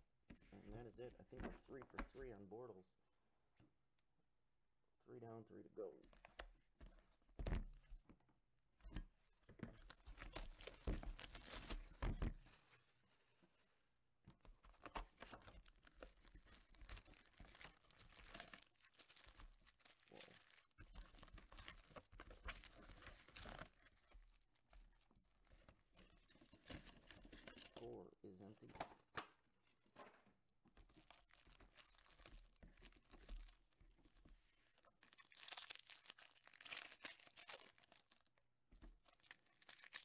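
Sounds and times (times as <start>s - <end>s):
foil packs tearing and crinkling: 35.0s - 38.3s.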